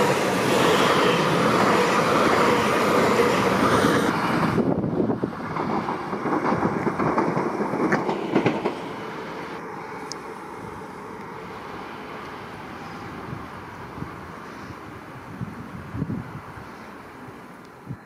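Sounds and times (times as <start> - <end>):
train wheel clatter: 0.0 - 9.6
electric train rumbling: 0.0 - 18.0.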